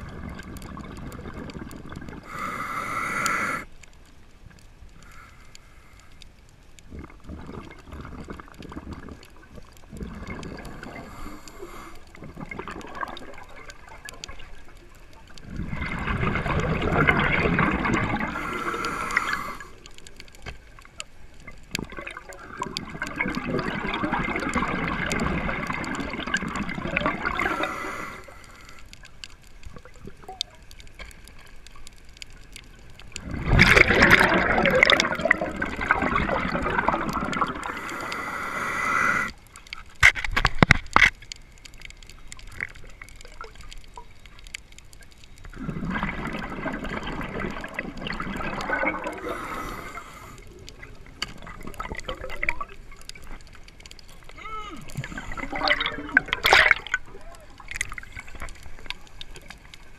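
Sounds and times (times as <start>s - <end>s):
diver exhaling bubbles underwater: 0.0s - 3.6s, 6.9s - 14.6s, 15.4s - 19.8s, 21.8s - 28.2s, 33.2s - 39.4s, 45.5s - 53.0s, 54.4s - 58.4s.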